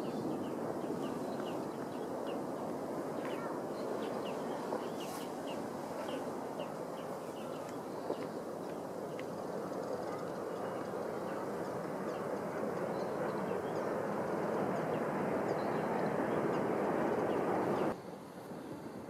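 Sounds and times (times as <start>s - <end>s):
small bird chirping: 3.2s - 8.3s.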